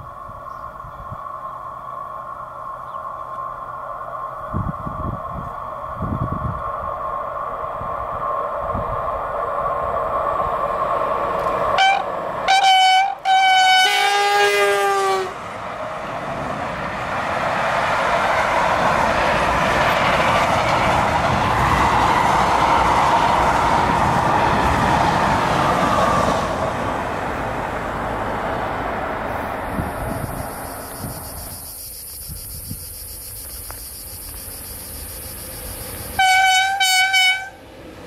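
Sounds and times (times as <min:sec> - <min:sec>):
train wagons running on rails: 0:00.0 - 0:38.0
freight train horn blasts: 0:11.7 - 0:15.5, 0:36.1 - 0:37.7.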